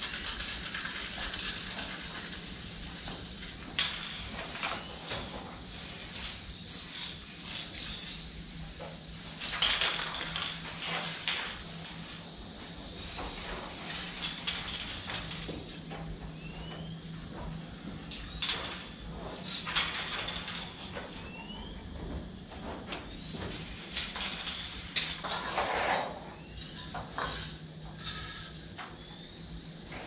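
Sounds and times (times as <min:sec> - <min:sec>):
spray paint can hissing: 0:00.0 - 0:15.8, 0:23.2 - 0:25.9, 0:29.2 - 0:30.0.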